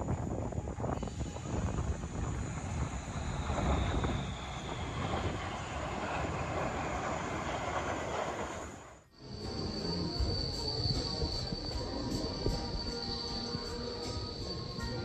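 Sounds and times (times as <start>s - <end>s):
wind on microphone: 0.0s - 8.8s, 9.6s - 15.0s
jet aircraft rushing: 0.0s - 15.0s
background music with steady beat: 9.2s - 15.0s.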